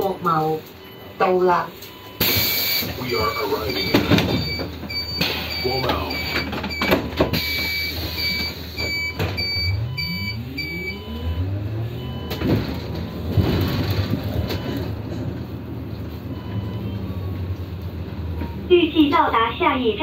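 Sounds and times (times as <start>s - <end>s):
bus door warning beeps: 0.0s - 13.4s, 14.0s - 15.2s, 16.1s - 17.6s, 18.3s - 19.8s
bus drive whine rising: 0.0s - 20.0s.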